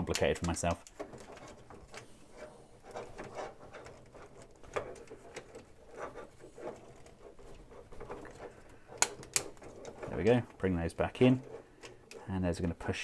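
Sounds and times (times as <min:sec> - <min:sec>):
plastic toy clicks and rustles: 0:00.0 - 0:02.1, 0:02.9 - 0:10.5.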